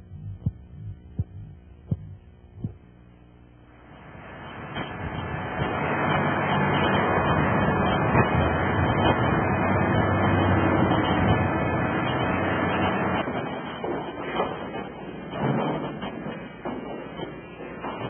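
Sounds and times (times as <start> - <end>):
crane engine running: 0.0 - 18.0
knocks and clanks: 4.4 - 18.0.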